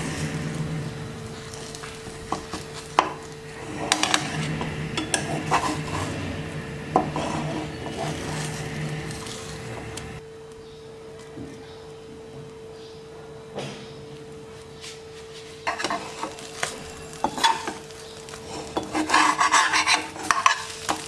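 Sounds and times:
spatula scraping frying pan: 0.0s - 10.2s, 15.3s - 21.0s
steady hum: 0.0s - 21.0s.

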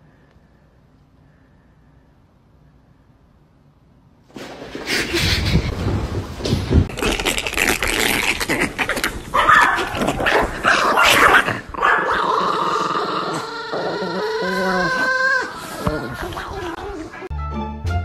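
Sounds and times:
dog making rough noises: 6.8s - 12.6s
dog wavering calls: 9.2s - 17.3s.

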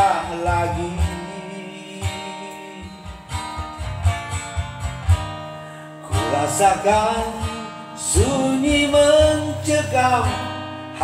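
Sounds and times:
strummed acoustic guitar: 0.0s - 11.0s.

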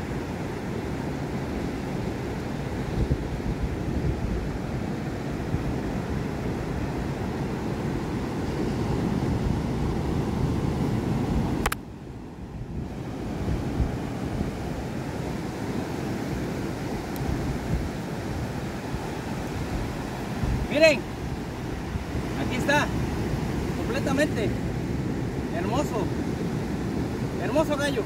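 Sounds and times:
ocean surf breaking: 0.0s - 28.0s
wind buffeting microphone: 1.0s - 28.0s
sharp click: 11.6s - 11.8s.

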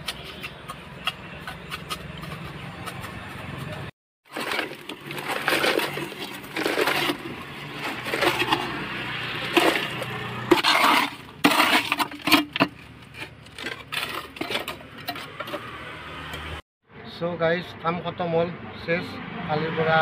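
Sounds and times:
wet concrete scraping and sliding: 0.0s - 16.1s.

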